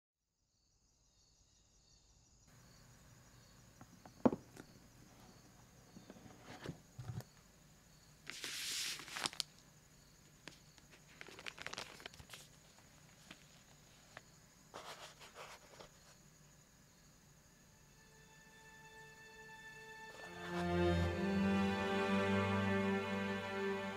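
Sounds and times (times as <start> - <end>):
tissue paper and plastic bags rustling: 8.3 - 9.5, 11.0 - 13.5.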